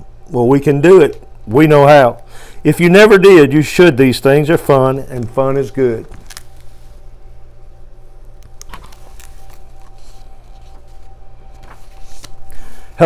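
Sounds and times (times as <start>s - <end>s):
low room hum: 0.0s - 13.0s
soft clicks of book pages: 6.0s - 6.8s, 8.3s - 12.6s.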